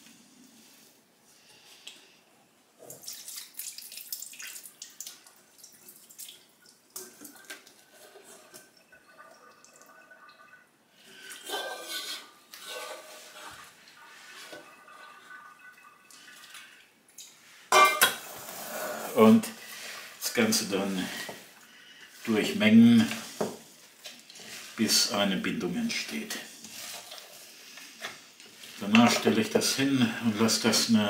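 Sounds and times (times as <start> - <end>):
water splashing in metal sink: 2.9 - 11.9
metal bowl clattering: 7.0 - 16.8, 17.7 - 18.5.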